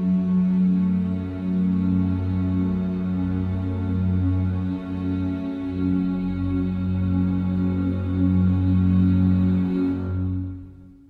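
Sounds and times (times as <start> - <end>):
ambient music with held low tones: 0.0 - 11.0.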